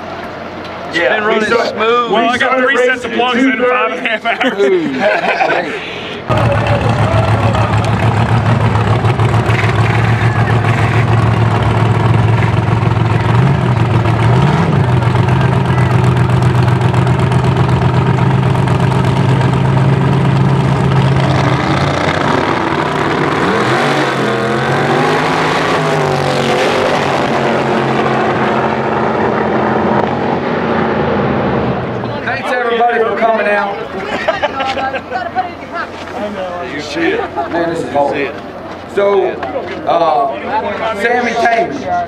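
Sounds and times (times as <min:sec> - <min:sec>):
race car engines idling: 0:00.0 - 0:42.0
race cars accelerating: 0:06.3 - 0:33.6.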